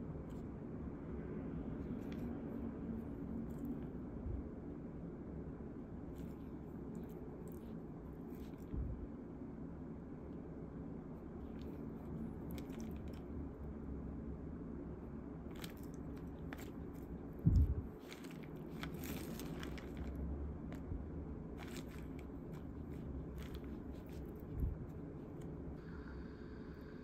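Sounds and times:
vegetables rustling in plastic tray: 0:15.5 - 0:20.8, 0:21.6 - 0:25.4.

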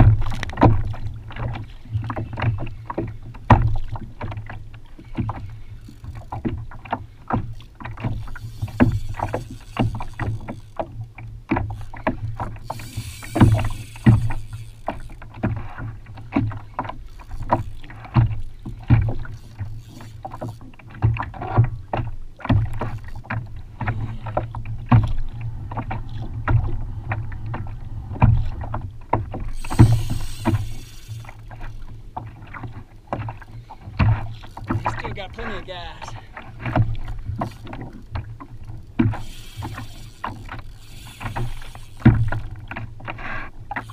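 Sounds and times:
water knocking against kayak hull: 0:00.0 - 0:12.6
water rushing hiss: 0:12.7 - 0:14.6, 0:29.6 - 0:31.4.

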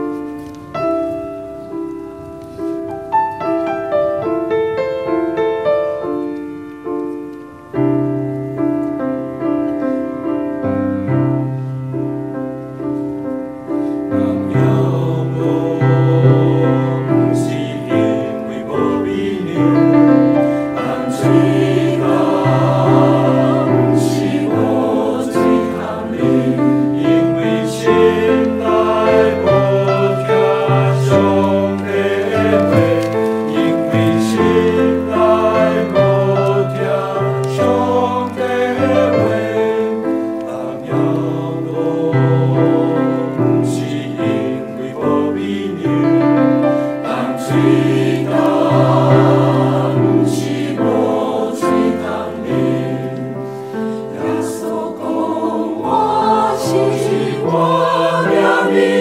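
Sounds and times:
piano accompaniment: 0:00.0 - 0:59.0
choir singing: 0:14.1 - 0:59.0.

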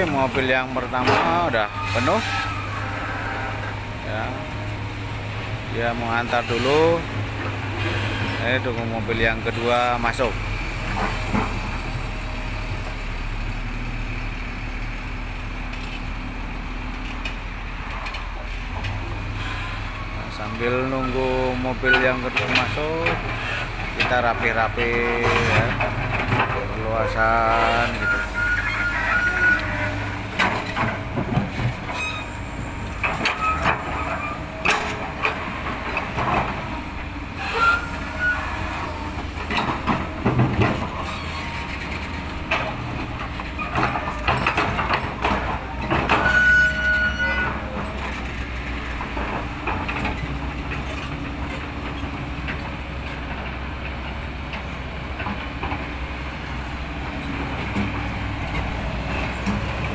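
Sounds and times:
diesel engine drone: 0:00.0 - 0:59.9
high squeal: 0:01.5 - 0:03.7, 0:27.7 - 0:30.0, 0:31.9 - 0:32.7, 0:37.4 - 0:38.8, 0:46.2 - 0:47.6.

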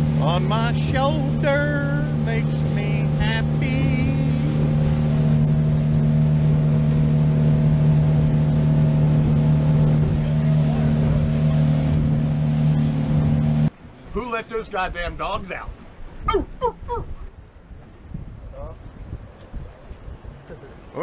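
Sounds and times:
outboard motor humming: 0:00.0 - 0:14.0
wind and water rushing: 0:00.0 - 0:21.0.

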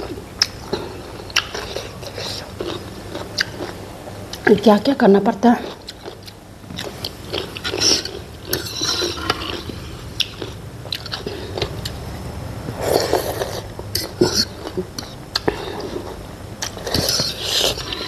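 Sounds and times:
wet chewing: 0:00.0 - 0:04.5, 0:05.6 - 0:12.0.

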